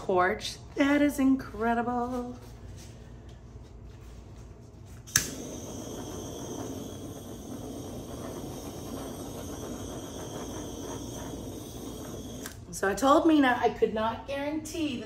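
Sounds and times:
torch flame hissing: 5.0 - 13.1
butane torch click: 5.1 - 12.7.

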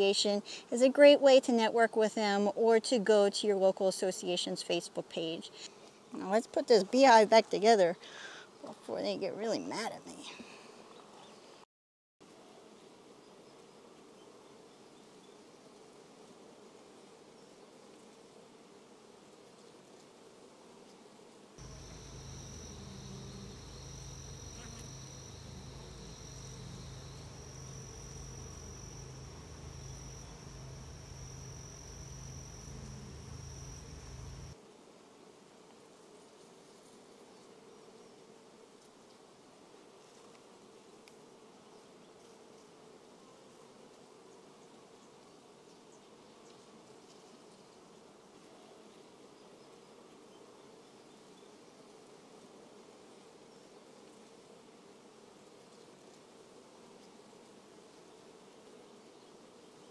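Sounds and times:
bees humming: 21.6 - 34.6
thin high-pitched tone: 21.6 - 34.6.

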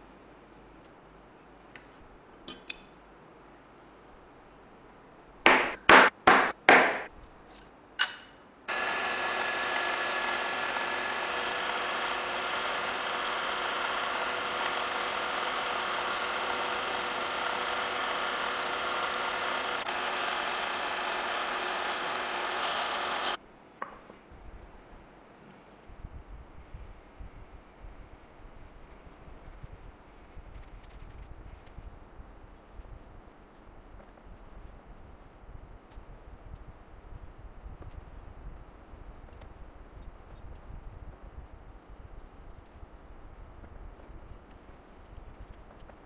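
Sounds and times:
drill press cutting metal: 8.7 - 23.4.

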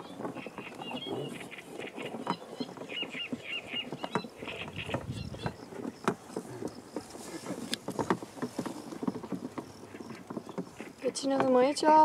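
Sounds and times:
bird chirping: 0.0 - 6.1
rustling and handling noise: 0.0 - 12.0.

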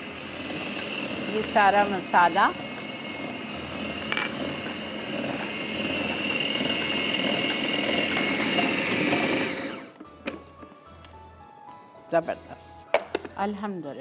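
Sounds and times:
food processor motor whining: 0.0 - 10.5.

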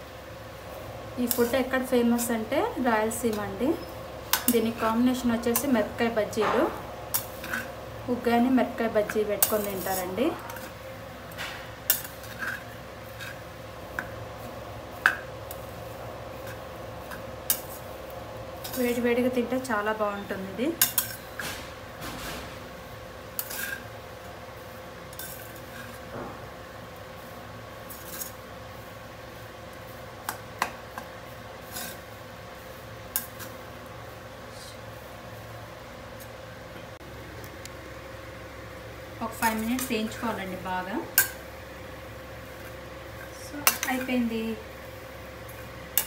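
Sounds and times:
steady hum: 0.0 - 46.0
spatula stirring puffed rice: 9.0 - 10.9, 11.7 - 19.4, 23.2 - 26.1, 27.1 - 34.3
metal spatula scraping a pan: 11.9 - 13.5, 23.4 - 23.9.

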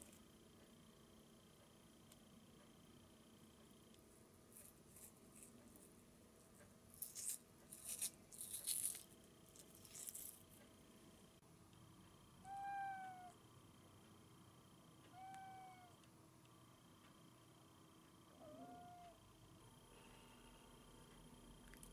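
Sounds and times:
cat meowing: 12.4 - 13.4, 15.1 - 16.0, 18.4 - 19.2.

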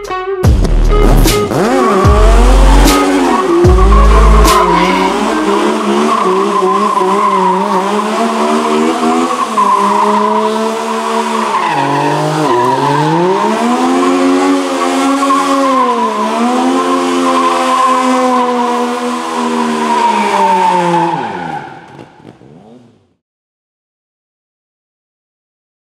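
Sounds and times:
race car engine revving: 0.6 - 23.2
tyres squealing: 1.6 - 22.0.

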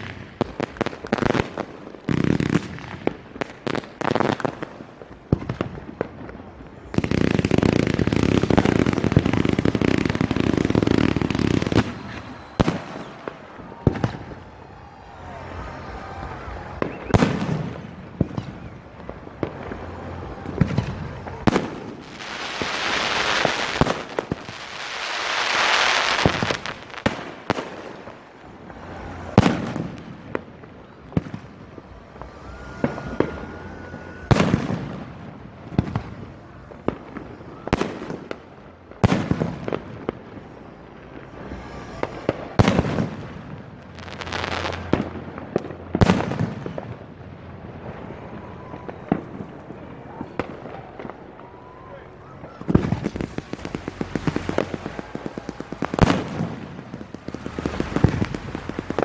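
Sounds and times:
fireworks bangs and crackle: 0.0 - 59.0.

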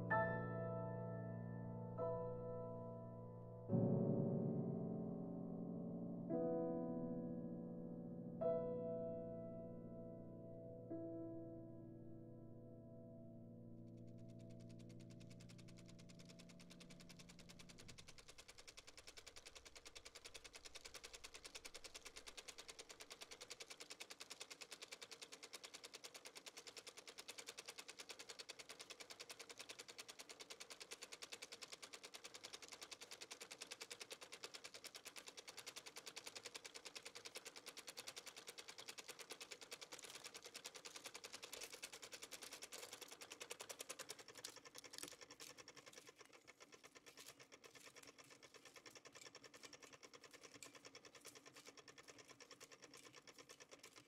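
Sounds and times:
rapid mechanical clicking: 13.8 - 54.0.

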